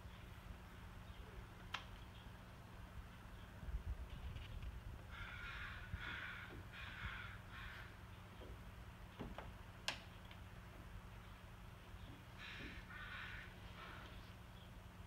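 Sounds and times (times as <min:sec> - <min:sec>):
crow cawing: 0:05.1 - 0:08.0, 0:12.4 - 0:14.2.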